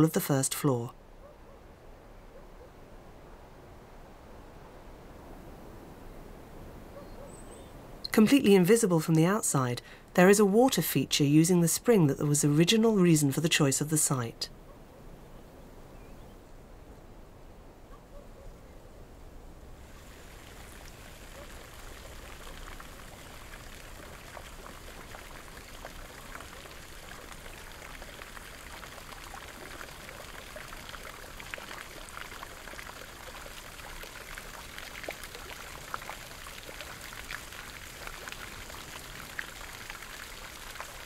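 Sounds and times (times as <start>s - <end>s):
fountain water splashing: 19.8s - 41.0s.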